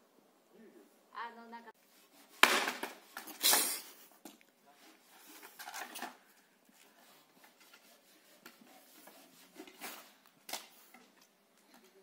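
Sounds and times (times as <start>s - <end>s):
sharp wooden knock: 2.4s - 3.0s.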